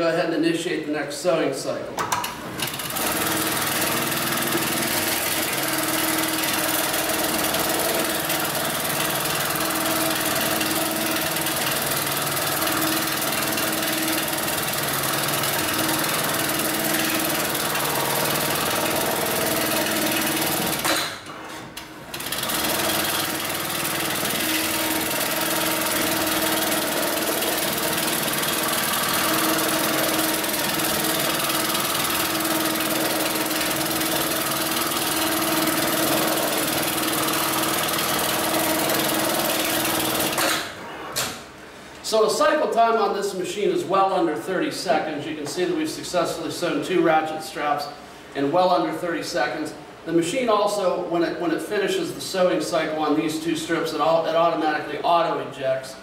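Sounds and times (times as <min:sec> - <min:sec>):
sewing machine stitching: 0:02.1 - 0:41.4.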